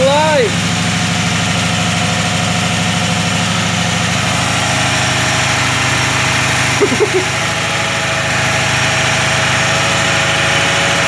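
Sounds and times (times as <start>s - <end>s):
car engine idling: 0.0s - 9.0s.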